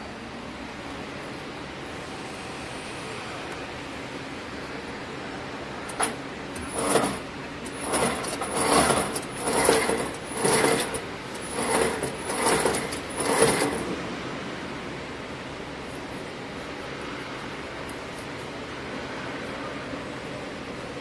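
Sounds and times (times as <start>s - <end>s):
braiding machine metallic rattles: 5.9s - 14.0s.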